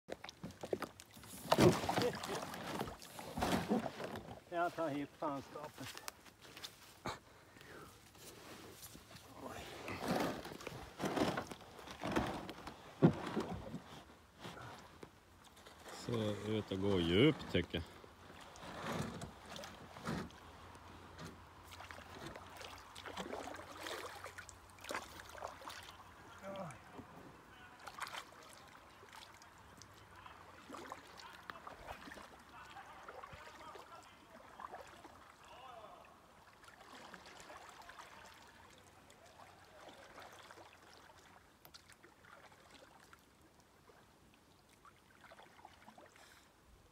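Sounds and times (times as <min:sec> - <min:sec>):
kayak paddle splashing in water: 0:00.1 - 0:04.6, 0:21.3 - 0:46.4.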